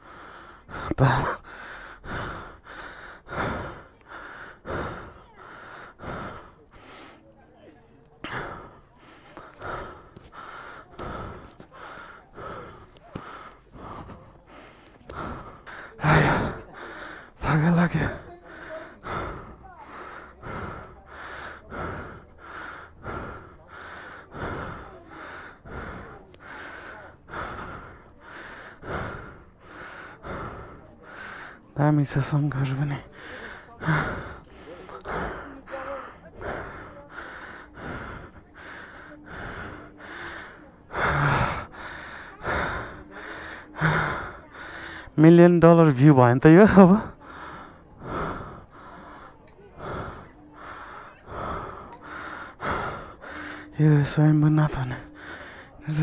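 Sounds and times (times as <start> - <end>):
person breathing heavily: 0.0 - 7.4, 8.1 - 56.0.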